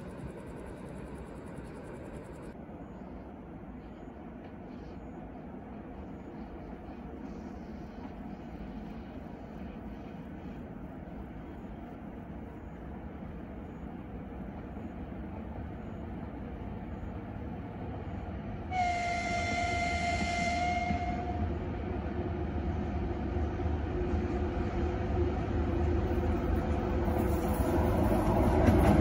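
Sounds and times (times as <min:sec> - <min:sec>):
freight train rumbling: 0:00.0 - 0:29.0
train horn blast: 0:18.7 - 0:21.6.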